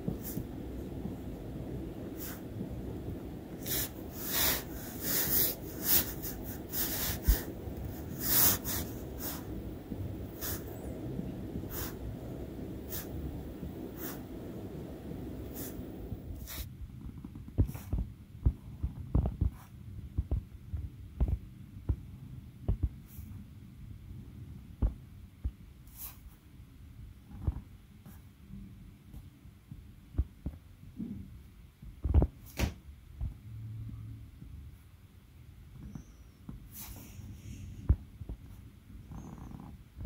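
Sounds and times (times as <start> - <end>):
steady low hum: 0.0 - 40.0
pen scratching on paper: 3.6 - 9.5, 12.9 - 13.2, 14.0 - 14.3, 15.4 - 16.7.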